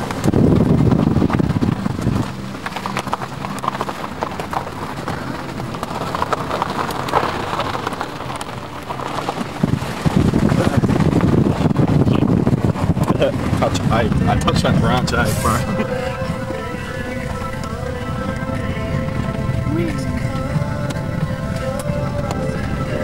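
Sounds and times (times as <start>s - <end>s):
car knocks and rattles: 0.0s - 15.2s
car engine running: 0.0s - 23.0s
tyres crunching over gravel: 0.0s - 23.0s.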